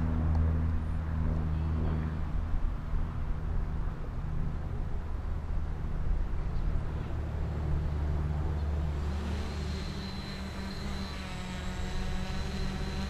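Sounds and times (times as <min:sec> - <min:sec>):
quadcopter motors whining: 0:08.5 - 0:13.0.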